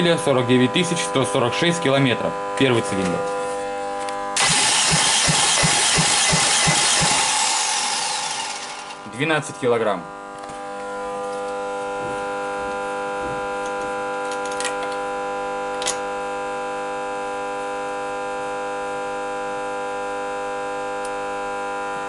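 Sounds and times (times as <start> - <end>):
steady high-toned hum: 3.7 - 9.2
sharp metallic clicks: 4.4 - 9.0.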